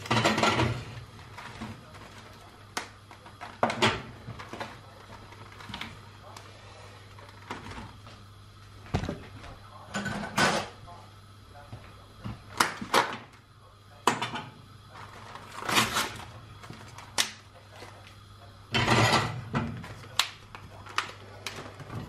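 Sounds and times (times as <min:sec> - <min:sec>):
low steady hum: 0:00.0 - 0:22.0
plastic clicks and crackles: 0:19.8 - 0:21.8.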